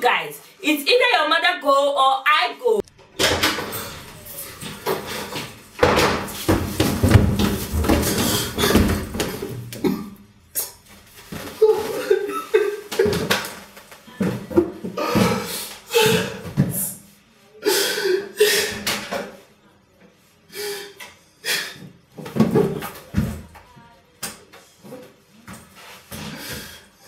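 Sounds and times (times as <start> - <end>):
door opening: 2.9 - 9.4.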